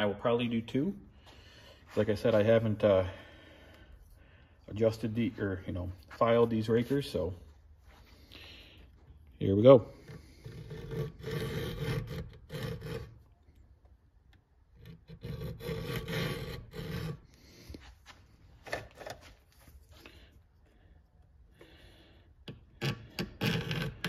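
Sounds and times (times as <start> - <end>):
file rasping on saw chain: 9.9 - 13.2, 14.8 - 17.2.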